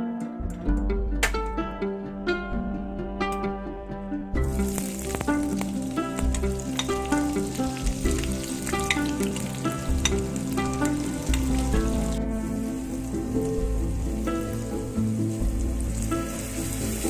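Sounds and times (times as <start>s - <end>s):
music of plucked notes: 0.0s - 17.0s
onions sizzling in hot oil: 4.4s - 17.0s.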